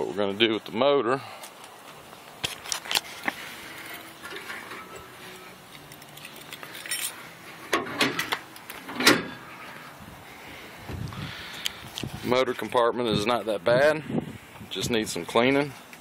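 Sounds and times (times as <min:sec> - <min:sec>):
handling rustle: 0:01.4 - 0:09.0.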